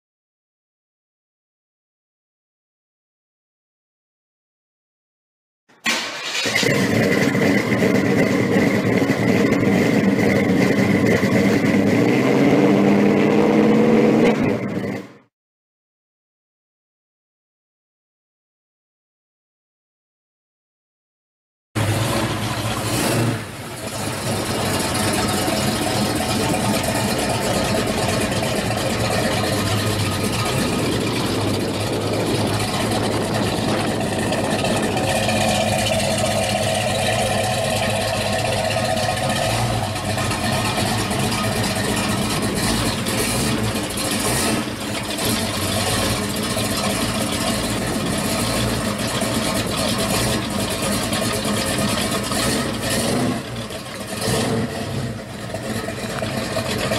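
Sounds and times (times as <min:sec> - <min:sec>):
car engine idling: 0:05.8 - 0:12.2, 0:21.8 - 0:56.9.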